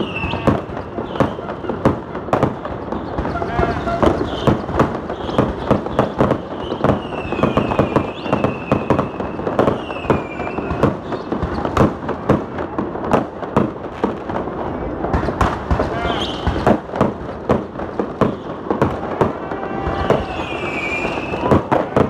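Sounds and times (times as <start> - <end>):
high firework whistle: 0.0 - 1.9, 2.7 - 11.9, 15.8 - 16.7, 18.2 - 22.0
fireworks bangs and crackling: 0.0 - 22.0.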